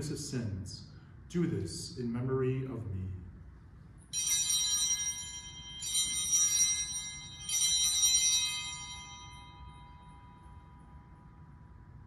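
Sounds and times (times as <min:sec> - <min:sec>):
altar bells jangling: 0:04.0 - 0:11.4.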